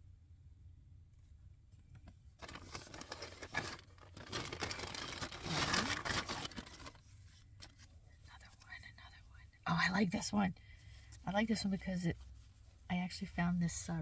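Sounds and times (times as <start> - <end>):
paper stickers crinkling: 2.4 - 7.9.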